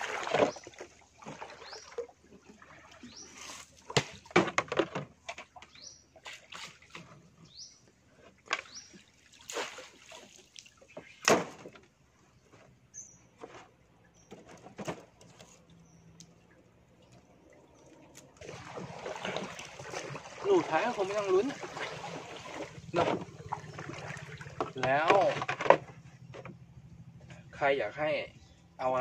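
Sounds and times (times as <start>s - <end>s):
water sloshing and splashing: 0.0s - 27.6s
crab traps knocking and clattering: 3.9s - 5.6s, 18.5s - 26.6s.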